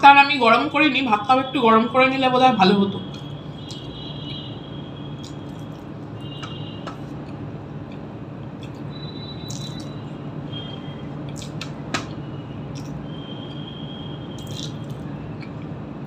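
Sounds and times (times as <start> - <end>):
chewing mouth sounds: 5.2 - 5.9, 7.0 - 10.0, 11.3 - 11.8, 12.7 - 13.0, 14.4 - 15.7.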